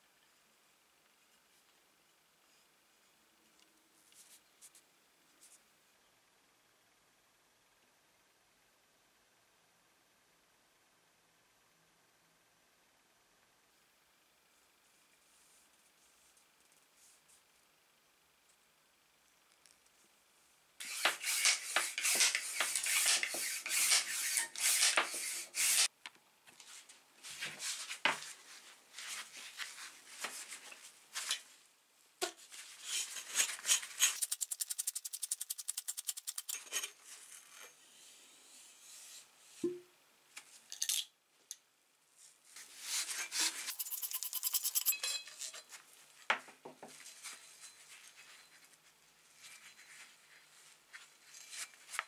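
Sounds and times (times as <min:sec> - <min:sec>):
metal pump parts clicking and rattling: 0:33.3 - 0:37.0, 0:43.7 - 0:45.6.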